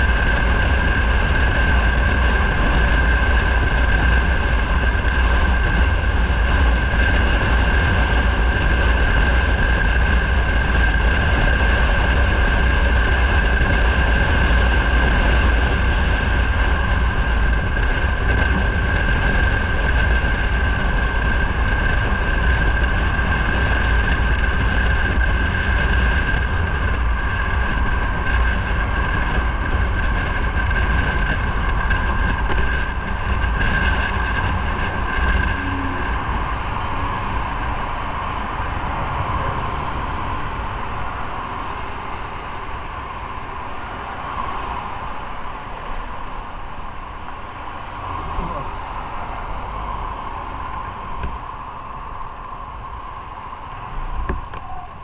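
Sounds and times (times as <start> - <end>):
wind rush with buffeting: 0.0 - 55.0
motorcycle engine: 24.9 - 44.9.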